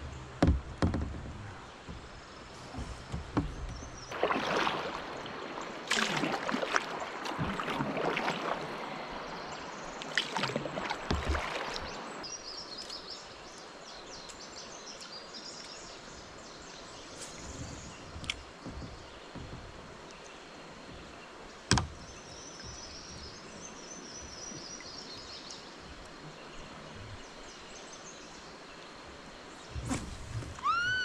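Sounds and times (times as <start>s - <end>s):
paddle splashing in water: 0.0s - 13.0s, 29.6s - 31.0s.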